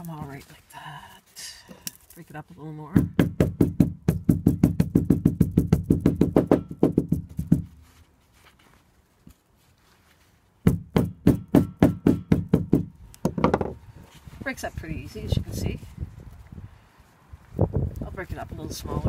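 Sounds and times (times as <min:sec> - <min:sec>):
hammer knocking seed on wooden deck: 0:02.9 - 0:07.9, 0:10.6 - 0:13.8.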